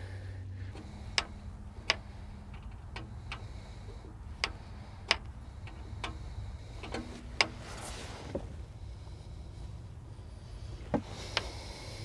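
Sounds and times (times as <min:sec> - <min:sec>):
low steady hum: 0:00.0 - 0:12.0
sharp metallic ticks: 0:00.7 - 0:07.6.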